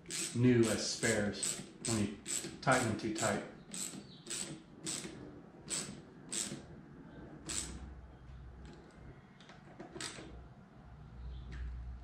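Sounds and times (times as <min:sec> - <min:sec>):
ratchet wrench clicking: 0:00.0 - 0:05.1, 0:05.7 - 0:06.7, 0:07.5 - 0:07.8, 0:10.0 - 0:10.2.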